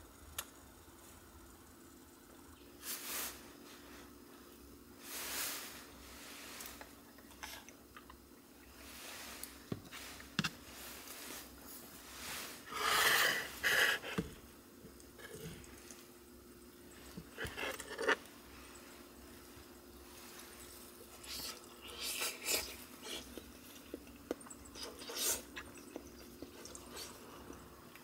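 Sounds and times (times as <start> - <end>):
faint steady hum: 0.0 - 28.0
soft chewing: 6.6 - 8.8, 20.1 - 28.0.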